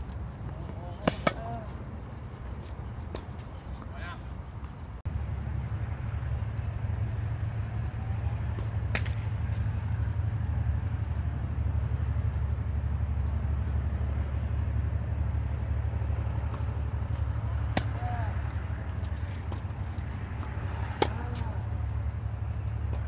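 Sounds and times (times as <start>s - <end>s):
low outdoor rumble: 0.0s - 23.0s
racket striking tennis ball: 0.4s - 1.7s, 8.5s - 9.6s, 16.5s - 21.7s.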